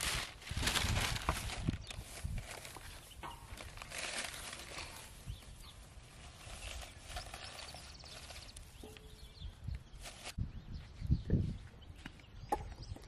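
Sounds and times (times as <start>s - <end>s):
dry grass and newspaper rustling: 0.0s - 11.6s
bird chirps: 5.2s - 13.0s.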